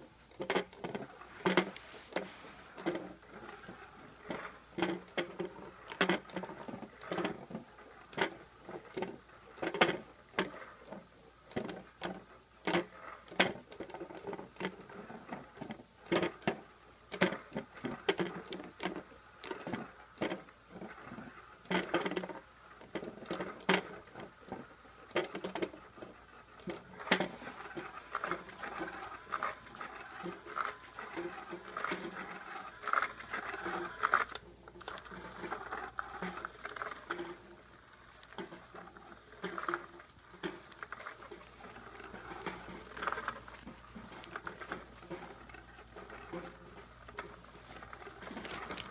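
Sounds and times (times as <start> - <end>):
fabric toy rustling and scratching: 0.6 - 9.1, 22.1 - 48.9.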